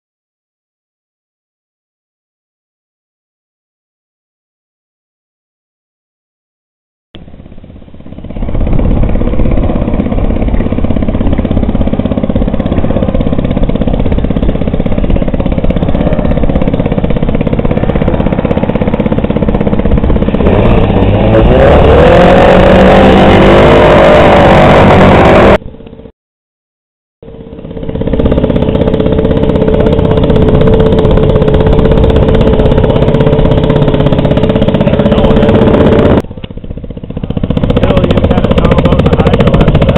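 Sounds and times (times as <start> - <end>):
outboard motor popping: 7.2 - 26.1, 27.2 - 39.9.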